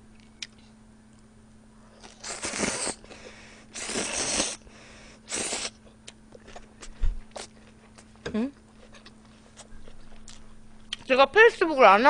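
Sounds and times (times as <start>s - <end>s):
person slurping noodles: 2.0s - 4.6s, 5.2s - 5.8s.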